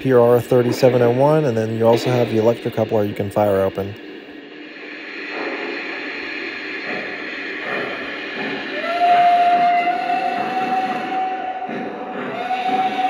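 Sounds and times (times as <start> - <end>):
steady hiss: 0.0 - 12.9
steam whistle blowing: 6.5 - 13.0.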